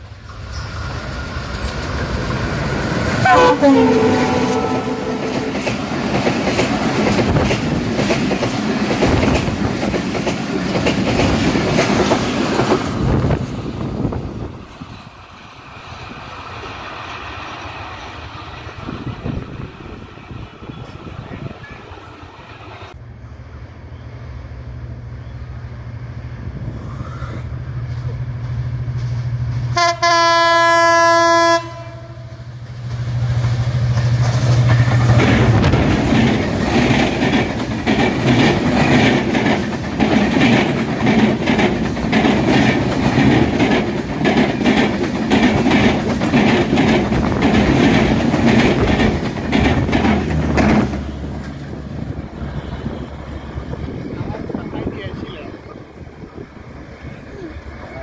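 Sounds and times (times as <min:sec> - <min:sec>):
train wheels clickety-clack: 0:00.0 - 0:22.2, 0:27.8 - 0:30.2, 0:32.6 - 0:55.5
diesel locomotive engine drone: 0:00.0 - 0:58.0
train horn blast: 0:03.2 - 0:05.8, 0:29.7 - 0:32.5.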